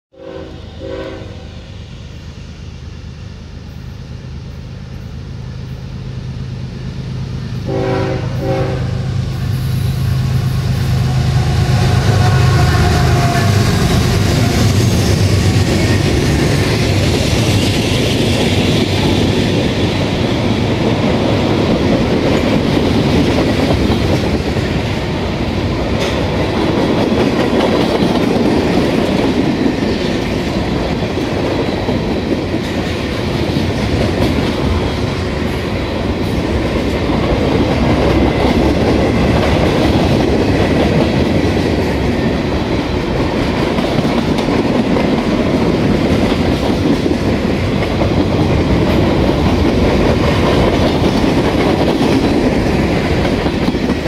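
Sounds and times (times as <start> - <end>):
train horn blasts: 0.1 - 1.6, 7.6 - 9.8, 10.4 - 14.8
diesel locomotive engines droning: 0.1 - 54.0
train cars rumbling: 0.1 - 54.0
wheel clickety-clack: 25.9 - 35.0, 43.1 - 54.0.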